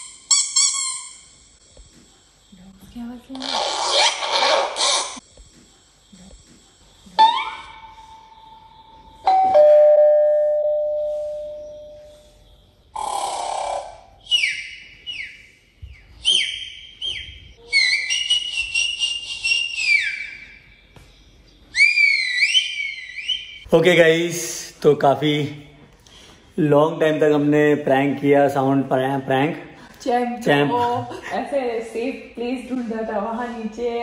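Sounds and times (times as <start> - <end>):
two-note doorbell ding-dong: 9.3 - 11.9.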